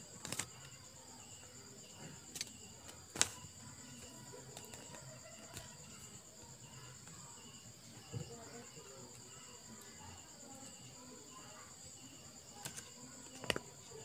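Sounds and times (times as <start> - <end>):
paper crackling: 0.2 - 0.7, 2.3 - 5.9.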